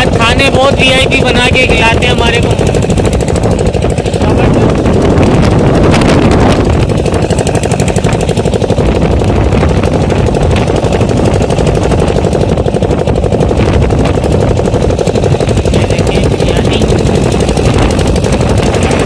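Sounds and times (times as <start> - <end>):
boat engine chugging: 0.0 - 19.0.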